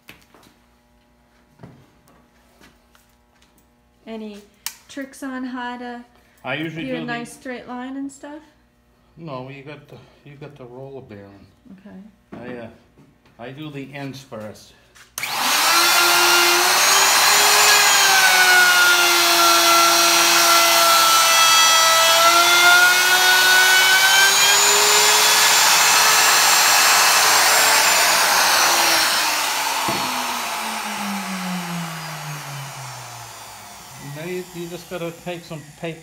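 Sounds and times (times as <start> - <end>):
router cutting wood: 15.2 - 36.0
router winding down whine: 15.2 - 36.0.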